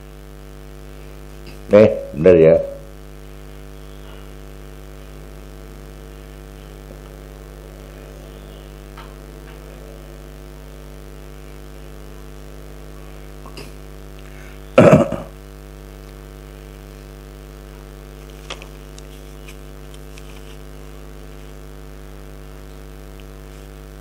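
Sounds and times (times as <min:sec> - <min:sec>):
electrical mains hum: 0:00.0 - 0:24.0
person coughing: 0:14.8 - 0:15.4.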